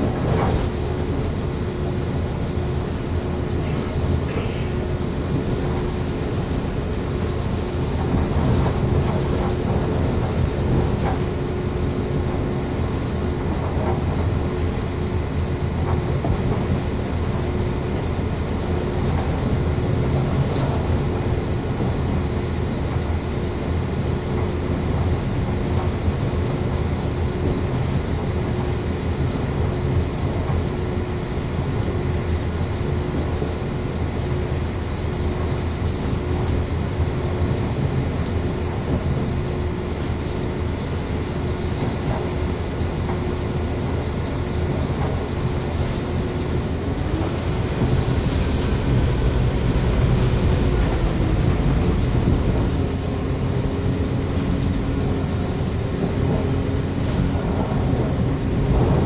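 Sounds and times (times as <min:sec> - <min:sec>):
train wheels rumbling on track: 0:00.0 - 0:59.0.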